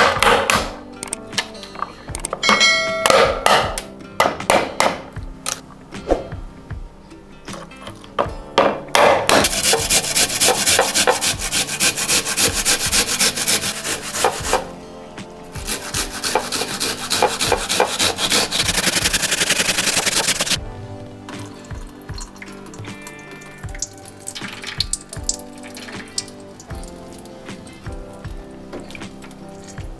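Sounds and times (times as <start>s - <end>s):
food scraping on metal grater: 9.4s - 14.7s, 15.6s - 20.6s.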